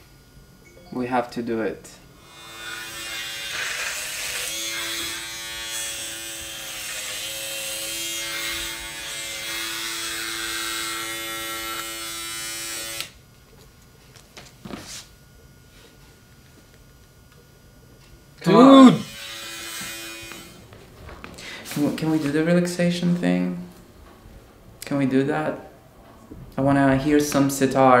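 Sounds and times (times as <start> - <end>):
electric hair clippers buzzing: 2.2 - 13.5, 18.3 - 24.2.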